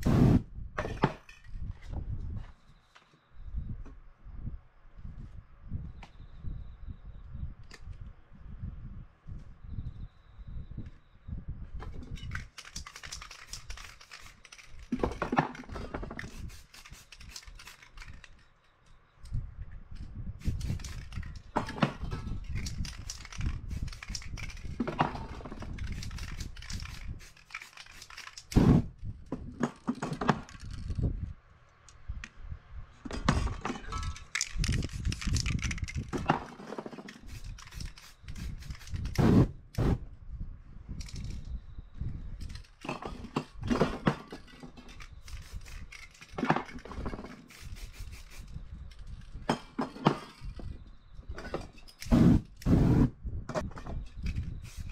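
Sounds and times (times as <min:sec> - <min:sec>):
spray-paint can hissing: 0:16.2 - 0:18.0, 0:20.4 - 0:21.2, 0:37.2 - 0:39.1, 0:47.5 - 0:48.6, 0:54.6 - 0:54.9.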